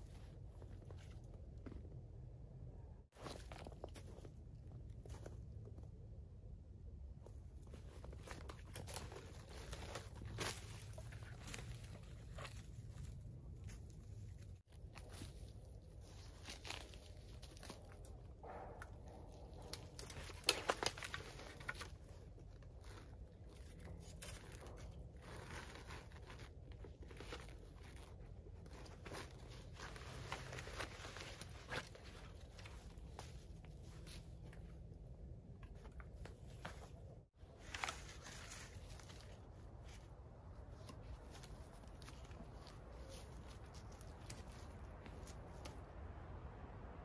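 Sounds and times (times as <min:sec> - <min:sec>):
branches crackling and brushing: 0:07.6 - 0:46.4.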